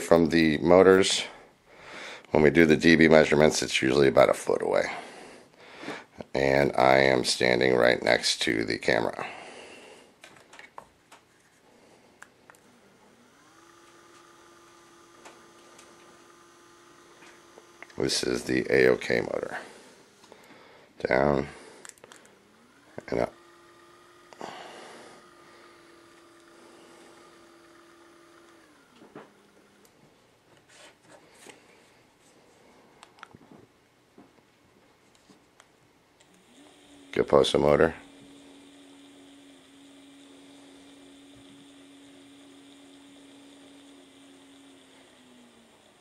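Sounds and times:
shade motor whine: 0:11.7 - 0:32.0, 0:36.2 - 0:46.0.

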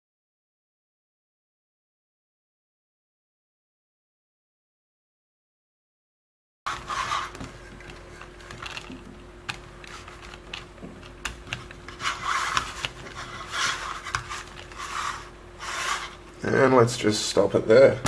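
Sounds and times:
wire rubbing over plastic: 0:06.7 - 0:16.2
faint steady hum: 0:06.7 - 0:18.0.

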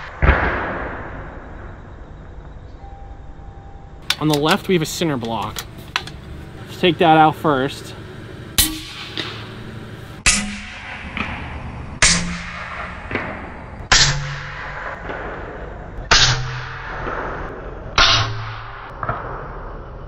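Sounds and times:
air rifle shot cracks: 0:08.6 - 0:19.2.

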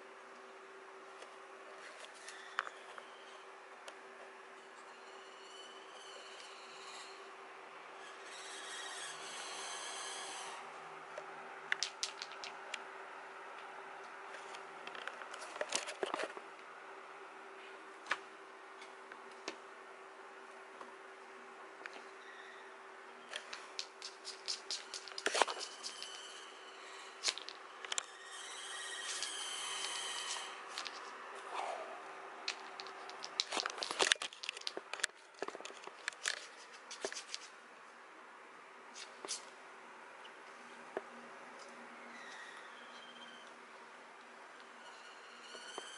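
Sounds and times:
faint steady hum: 0:00.0 - 0:45.9
claws and toy tapping floorboards: 0:11.7 - 0:12.8, 0:23.4 - 0:26.3, 0:32.4 - 0:37.5
kitten scratching a toy mouse: 0:23.5 - 0:31.2
rasping rub on wooden floor: 0:23.8 - 0:27.4, 0:28.1 - 0:31.0.

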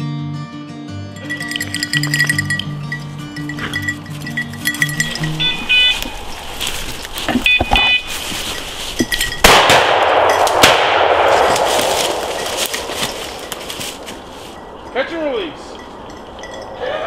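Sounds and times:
beeper collar high beeps: 0:04.4 - 0:06.2, 0:07.4 - 0:08.3
shotgun shots with echo: 0:09.4 - 0:12.3.

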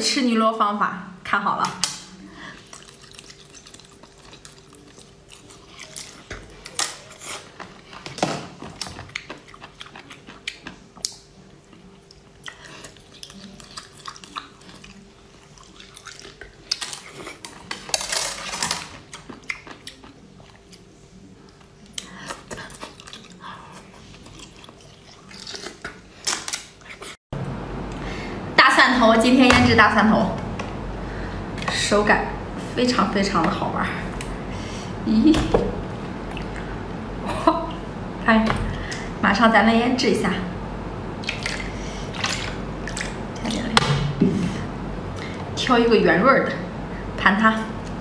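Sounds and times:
wet slurping and chewing: 0:02.5 - 0:08.1, 0:08.7 - 0:17.9, 0:21.6 - 0:27.2, 0:41.2 - 0:43.7.

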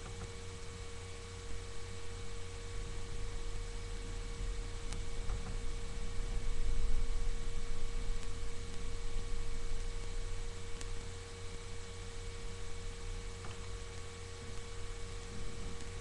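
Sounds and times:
electrical hum: 0:00.0 - 0:16.0
faint ticks: 0:04.8 - 0:05.6, 0:08.1 - 0:08.9, 0:10.7 - 0:11.6, 0:13.2 - 0:16.0.

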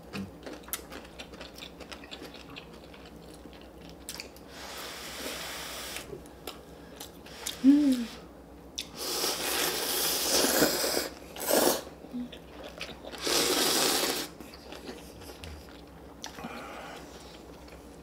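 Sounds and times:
soft chewing: 0:00.1 - 0:04.5, 0:12.0 - 0:13.4, 0:14.4 - 0:18.0.

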